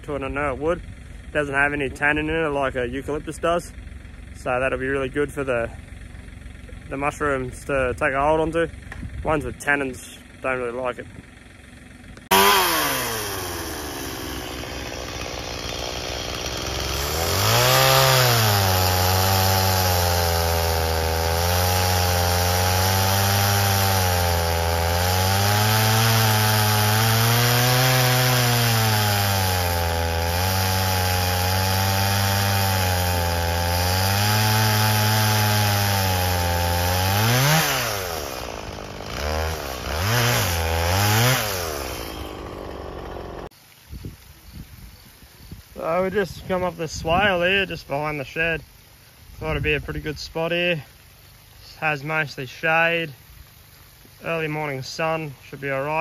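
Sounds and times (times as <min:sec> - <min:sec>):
chainsaw cutting log: 0:00.2 - 0:43.6.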